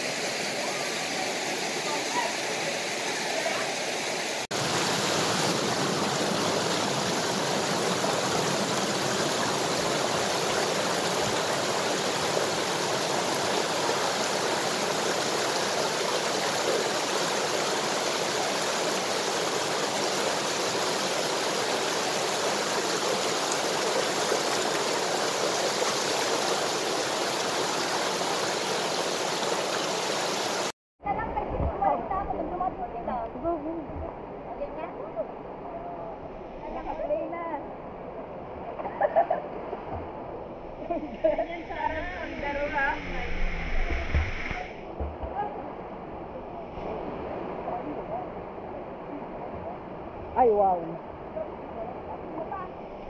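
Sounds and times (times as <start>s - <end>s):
water rushing over rocks: 0.0s - 30.8s.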